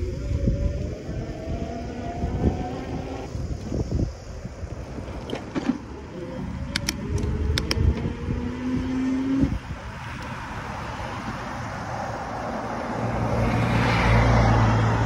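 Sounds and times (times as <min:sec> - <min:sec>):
wind rumbling on microphone: 0:00.0 - 0:15.0
sharp clicks: 0:06.7 - 0:08.0.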